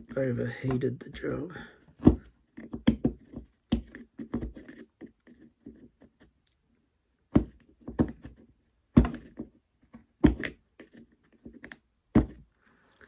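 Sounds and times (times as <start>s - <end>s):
knife scraping plastic: 2.1s - 6.4s, 7.4s - 12.4s.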